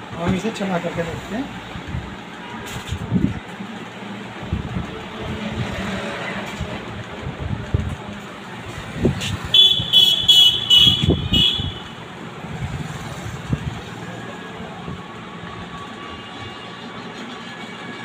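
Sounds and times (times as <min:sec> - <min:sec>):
street traffic noise: 0:00.0 - 0:18.0
high-pitched horn tooting: 0:09.5 - 0:11.9.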